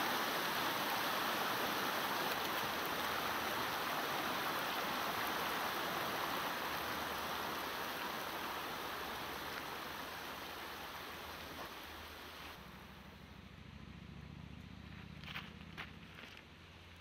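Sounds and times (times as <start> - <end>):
river rushing over stones: 0.0 - 12.8.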